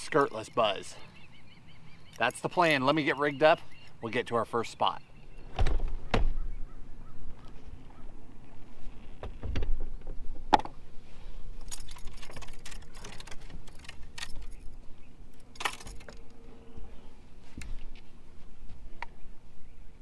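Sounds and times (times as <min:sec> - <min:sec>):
dull thump: 0:05.5 - 0:06.4
fishing tackle clicks and rattles: 0:11.6 - 0:14.8, 0:15.4 - 0:16.2.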